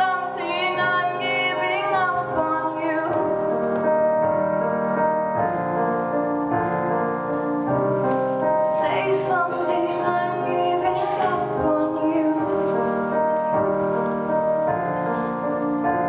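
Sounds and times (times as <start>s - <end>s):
woman singing into a microphone: 0.0s - 3.4s, 8.7s - 13.2s
piano ballad: 0.0s - 16.0s.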